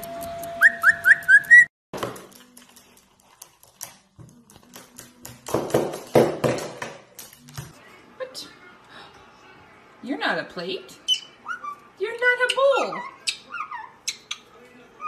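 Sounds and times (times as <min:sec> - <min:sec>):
parrot whistling rising notes: 0:00.6 - 0:01.7.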